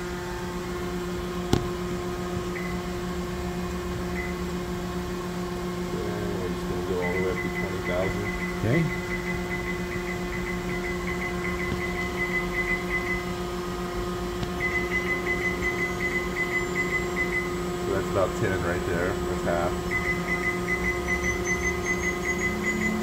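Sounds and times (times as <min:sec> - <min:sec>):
milling spindle hum: 0:00.0 - 0:23.0
high pulsing tone: 0:05.7 - 0:23.0.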